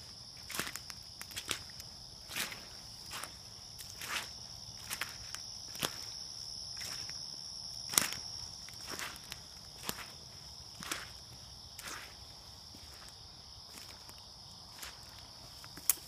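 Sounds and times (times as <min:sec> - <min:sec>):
insects trilling: 0:00.0 - 0:16.0
footsteps walking: 0:02.3 - 0:06.2, 0:07.9 - 0:14.1, 0:14.7 - 0:16.0.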